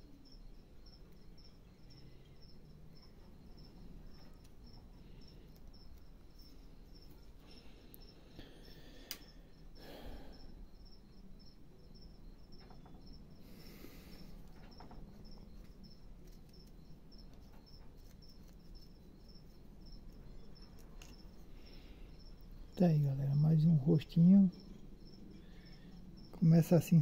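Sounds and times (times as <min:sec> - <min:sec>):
cricket chirping: 0:00.0 - 0:27.0.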